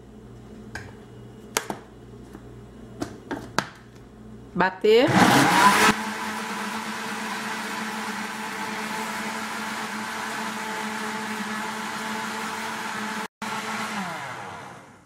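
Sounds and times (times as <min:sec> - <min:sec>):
blender running: 0:05.1 - 0:15.0.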